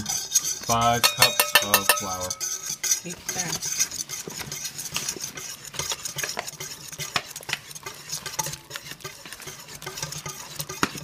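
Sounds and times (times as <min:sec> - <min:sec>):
utensil scraping a bowl: 0:00.0 - 0:11.0.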